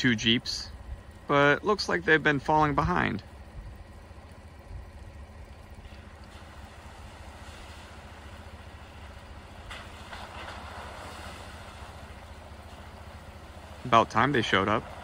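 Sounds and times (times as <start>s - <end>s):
faint engine rumble: 0.0s - 15.0s.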